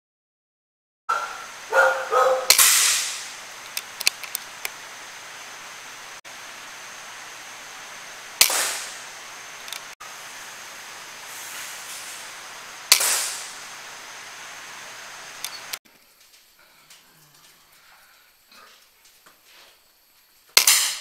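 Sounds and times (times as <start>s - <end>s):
steady background hiss: 1.1s - 21.0s
air rifle shots: 2.5s - 3.4s, 8.4s - 9.0s, 12.9s - 13.6s.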